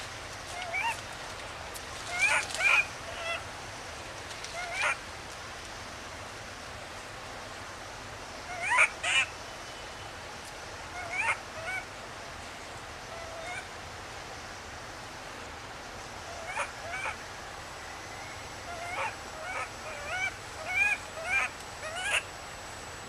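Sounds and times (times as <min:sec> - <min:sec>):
infant monkey whimpering cries: 0:02.1 - 0:03.4, 0:08.5 - 0:09.3, 0:10.9 - 0:11.8, 0:18.7 - 0:22.2.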